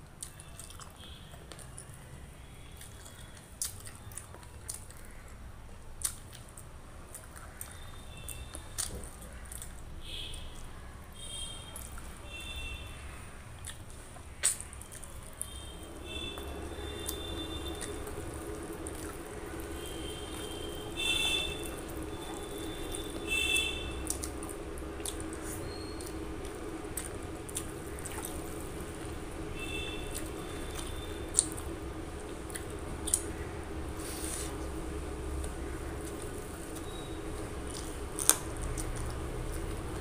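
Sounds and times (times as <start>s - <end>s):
wet squishing of food by hand: 0.0s - 40.0s
low hum: 15.3s - 40.0s.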